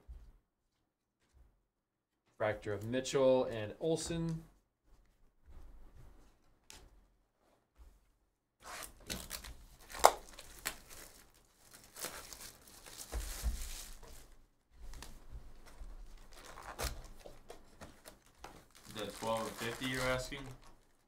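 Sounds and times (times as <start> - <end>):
plastic wrap crackling rips: 8.6 - 14.3, 15.7 - 21.0
plastic wrap sharp snap: 8.8 - 14.2, 16.3 - 21.0.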